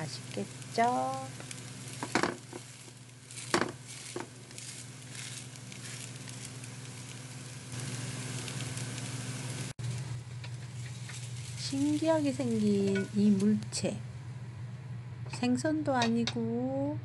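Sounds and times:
pancake sizzling in oil: 0:00.0 - 0:13.6.

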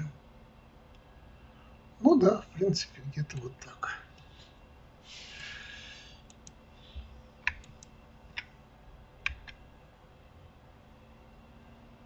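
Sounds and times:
computer mouse and key clicks: 0:06.2 - 0:08.6, 0:09.2 - 0:09.6.

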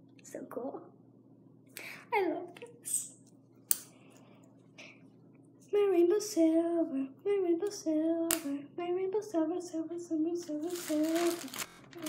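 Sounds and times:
girl singing wordless tune: 0:05.7 - 0:12.0.

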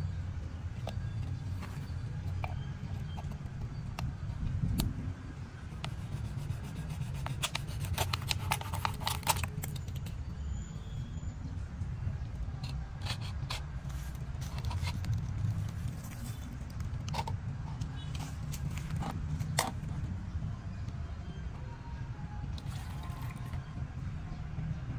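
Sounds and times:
knife sawing through plastic bottle: 0:05.8 - 0:09.5
plastic being handled clicks: 0:07.2 - 0:10.2.

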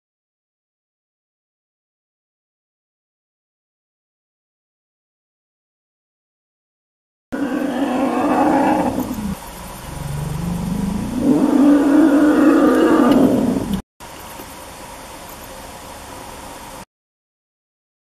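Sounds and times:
elephant roaring: 0:07.4 - 0:13.8
steady background noise: 0:07.4 - 0:16.9.

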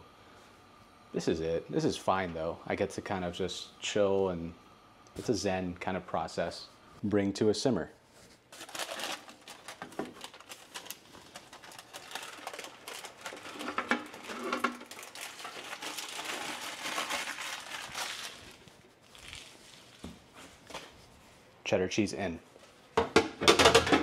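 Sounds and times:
paper crinkling and rustling: 0:08.1 - 0:21.3.

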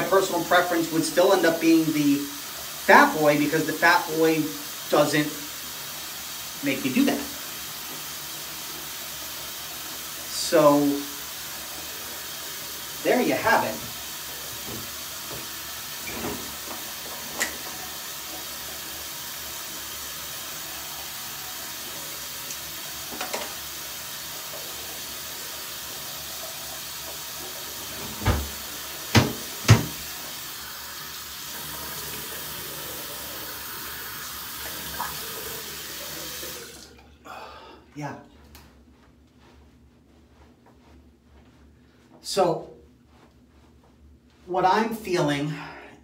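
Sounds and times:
tap running: 0:11.6 - 0:18.8, 0:21.9 - 0:30.7.

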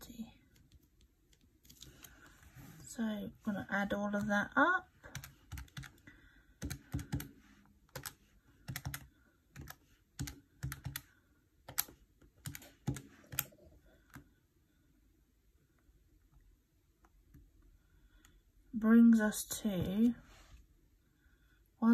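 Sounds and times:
calculator keys clicking: 0:07.9 - 0:11.1.

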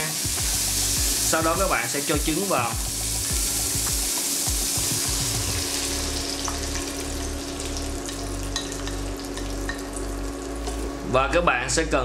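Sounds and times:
egg sizzling in hot pan: 0:00.0 - 0:11.1
steady low hum: 0:02.8 - 0:12.0.

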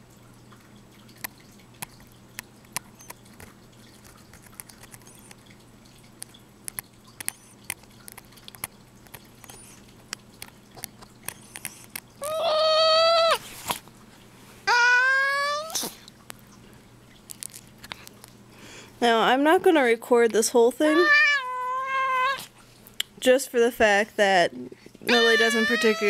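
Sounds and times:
cat meowing: 0:12.2 - 0:13.4, 0:14.7 - 0:15.9, 0:20.9 - 0:22.5, 0:25.1 - 0:26.0.

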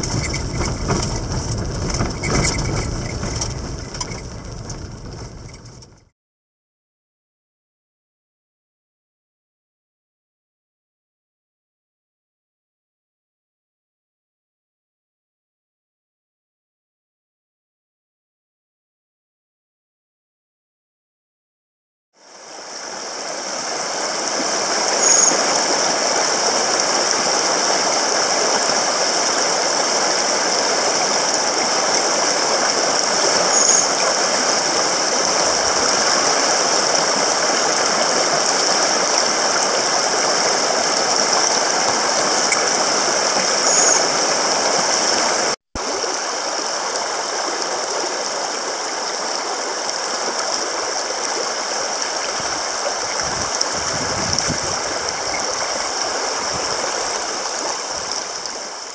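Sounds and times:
stream rushing over rocks: 0:22.2 - 0:58.9.

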